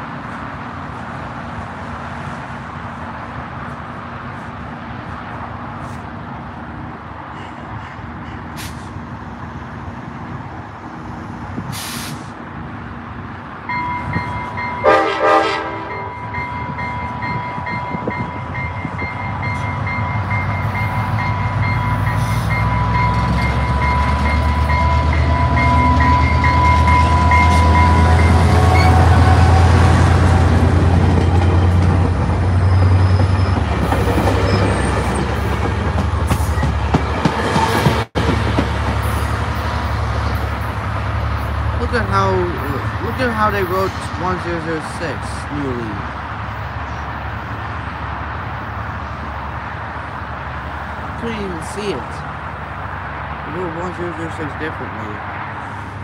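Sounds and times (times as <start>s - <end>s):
train rumbling: 0.0s - 56.0s
train bell ringing: 13.7s - 15.2s, 15.8s - 29.3s
train horn toots: 14.0s - 16.4s, 25.2s - 30.0s.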